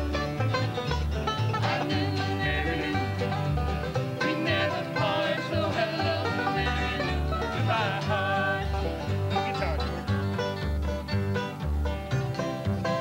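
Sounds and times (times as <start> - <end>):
acoustic guitars strumming: 0.0 - 13.0
upright bass plucking: 0.0 - 13.0
man singing: 4.3 - 9.0.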